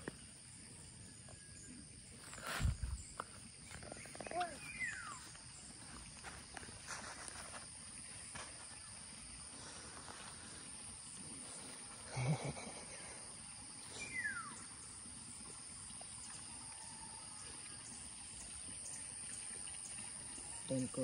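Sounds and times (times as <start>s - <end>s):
insect chorus: 0.0s - 21.0s.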